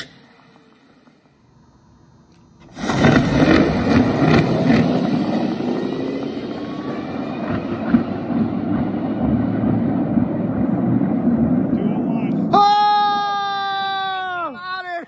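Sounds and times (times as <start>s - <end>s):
rising motor whine: 0.0s - 12.5s
dragster launching rush: 2.6s - 12.5s.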